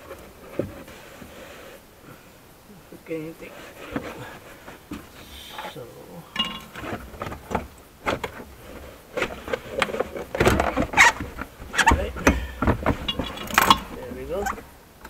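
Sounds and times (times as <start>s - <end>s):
trim panel rustling and scraping: 6.4s - 14.6s.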